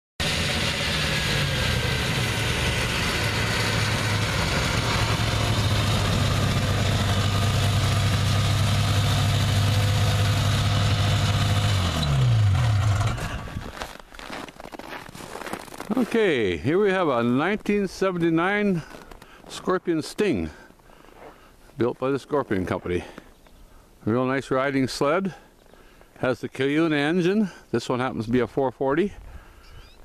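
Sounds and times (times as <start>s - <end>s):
snowmobile engine running: 0.2s - 13.9s, 15.4s - 17.0s.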